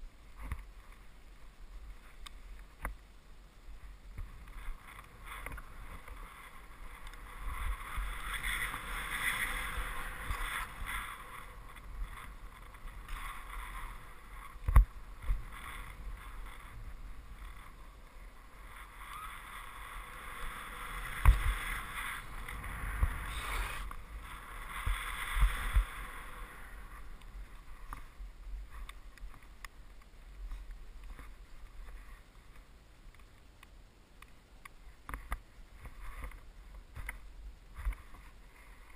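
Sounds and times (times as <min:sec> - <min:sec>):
skis hissing through snow: 0:04.8 - 0:14.4, 0:18.5 - 0:27.8.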